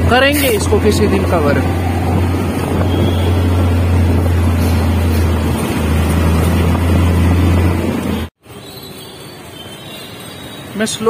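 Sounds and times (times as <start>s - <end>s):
wind rumble on microphone: 0.0s - 8.1s
motorbike engine: 0.0s - 8.3s
bus running alongside: 0.0s - 11.0s.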